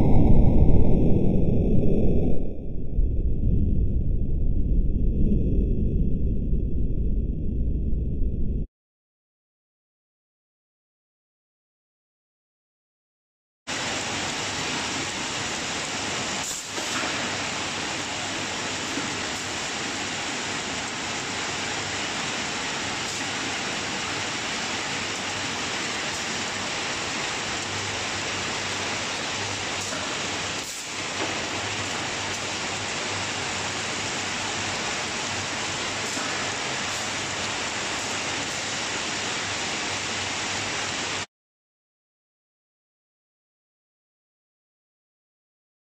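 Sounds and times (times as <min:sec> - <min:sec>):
conveyor belts and motors rushing: 0:13.7 - 0:40.8.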